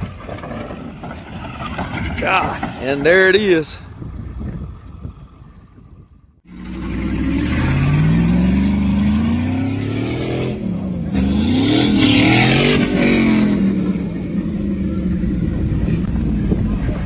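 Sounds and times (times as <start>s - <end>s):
pickup truck engine revving: 6.5s - 17.0s.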